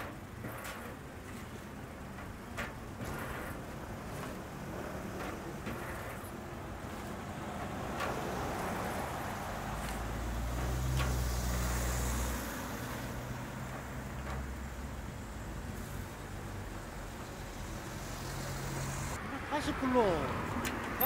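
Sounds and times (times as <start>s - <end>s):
passing vehicle engine rumble: 0.0s - 21.0s.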